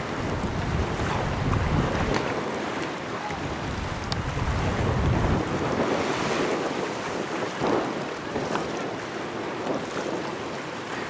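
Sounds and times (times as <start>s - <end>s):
waves on river: 0.0s - 11.0s
wind buffeting microphone: 0.0s - 11.0s.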